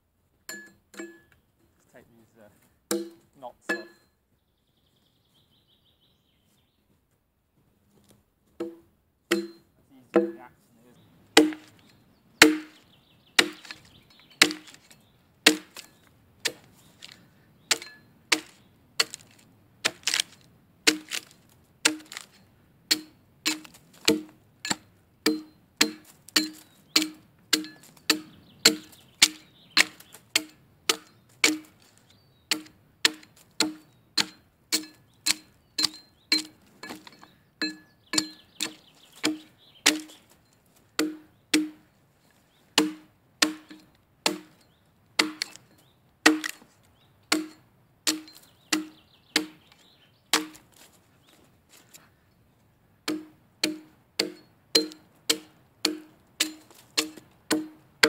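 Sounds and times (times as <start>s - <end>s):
axe chopping wood: 2.9s - 4.0s, 8.6s - 9.6s, 10.2s - 10.4s, 11.4s - 11.8s, 12.4s - 12.8s, 13.4s - 31.9s, 32.5s - 40.4s, 41.0s - 41.9s, 42.8s - 44.6s, 45.2s - 46.7s, 47.3s - 50.9s, 53.0s - 58.0s.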